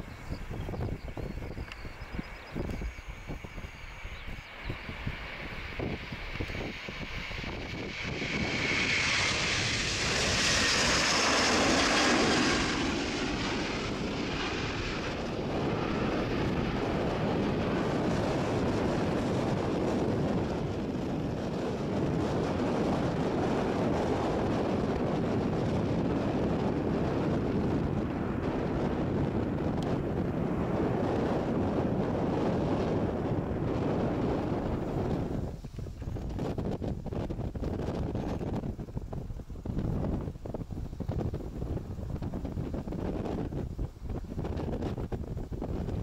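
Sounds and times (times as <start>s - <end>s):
jet engines roaring at takeoff: 0.0s - 46.0s
high engine whine: 1.7s - 20.8s.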